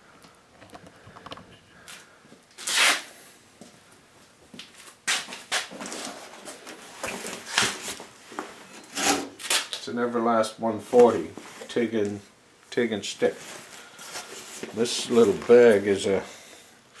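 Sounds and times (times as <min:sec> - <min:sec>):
rustling: 0:13.2 - 0:16.0.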